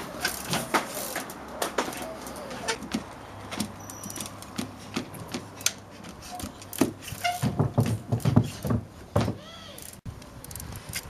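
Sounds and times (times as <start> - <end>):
bike tyre thumping on wood: 0.2 - 9.6.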